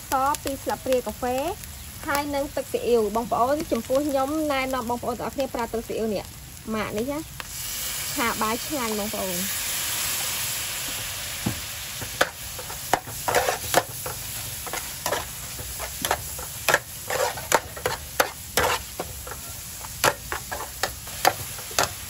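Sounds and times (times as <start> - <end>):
food sizzling in a frying pan: 0.0 - 22.0
metal spatula scraping a pan: 12.2 - 22.0.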